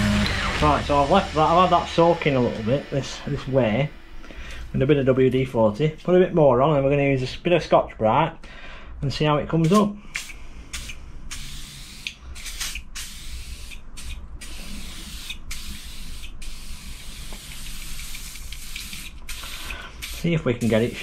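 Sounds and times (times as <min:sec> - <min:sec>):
aerosol can spraying: 0:09.6 - 0:21.0.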